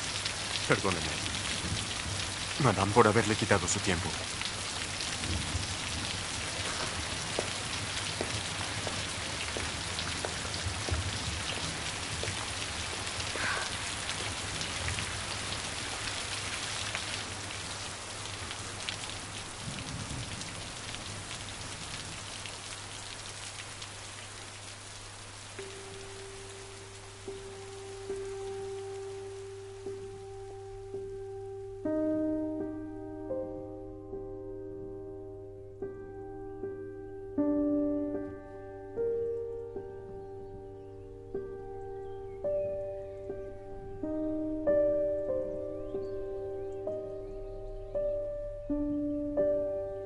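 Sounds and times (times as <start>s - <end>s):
heavy rain falling: 0.0s - 31.8s.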